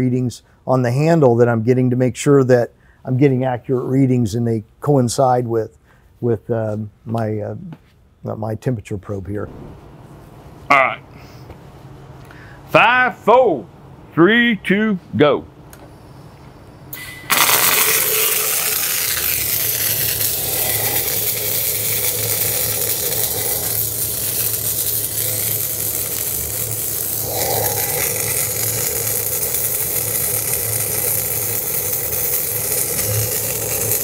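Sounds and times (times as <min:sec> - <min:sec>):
welding arc sizzling: 0:09.4 - 0:10.6, 0:16.9 - 0:34.0.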